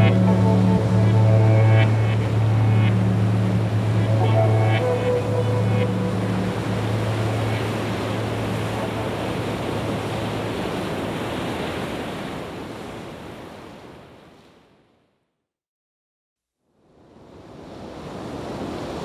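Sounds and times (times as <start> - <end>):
steady rushing noise: 0.0 - 11.6.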